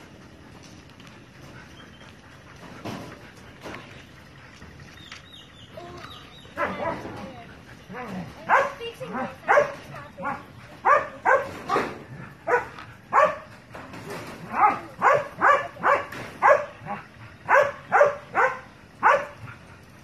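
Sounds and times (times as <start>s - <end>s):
dog barking: 6.6s - 7.2s, 7.9s - 13.5s, 14.4s - 19.5s.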